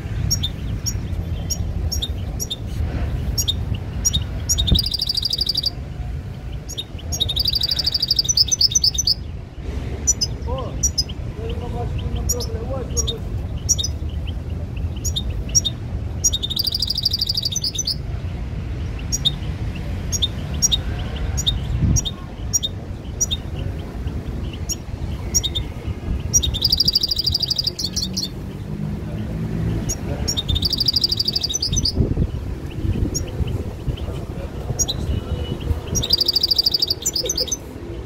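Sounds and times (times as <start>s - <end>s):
bird trills: 3.4s - 5.8s, 6.6s - 9.3s, 14.9s - 18.0s, 24.4s - 28.4s, 29.8s - 32.0s, 35.9s - 37.7s
goldfinch chirping: 3.4s - 5.8s, 6.5s - 9.3s, 10.0s - 18.0s, 21.4s - 28.4s, 29.8s - 32.0s, 34.8s - 37.7s.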